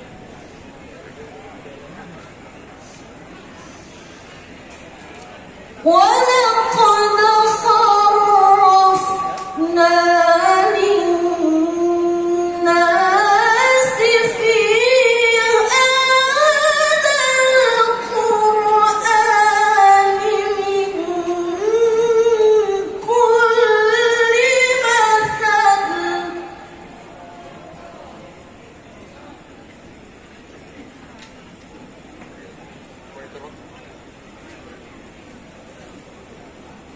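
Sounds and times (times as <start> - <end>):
woman chanting melodically: 5.8 - 28.4.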